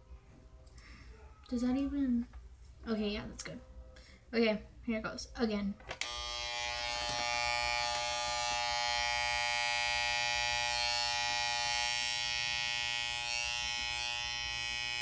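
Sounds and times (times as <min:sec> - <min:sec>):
electric hair clippers buzzing: 0:06.0 - 0:15.0.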